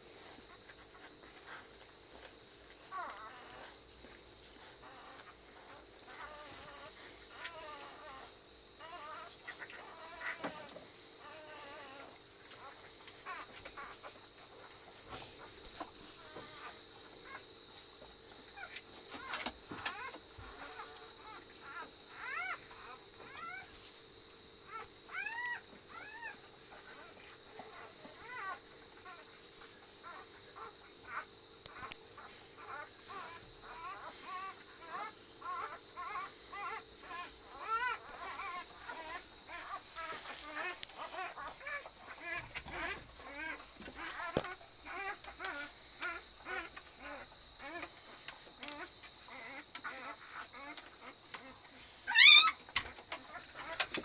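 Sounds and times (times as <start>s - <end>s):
puppies squeaking and whimpering: 2.2s - 14.2s, 14.9s - 17.4s, 18.5s - 23.7s, 24.7s - 47.9s, 48.7s - 54.0s
puppy squeaking: 52.1s - 52.6s.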